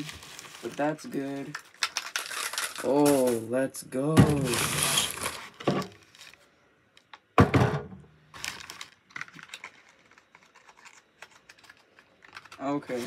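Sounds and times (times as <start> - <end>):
packaging rustling: 0.0 - 3.5, 4.4 - 6.5, 8.3 - 13.0.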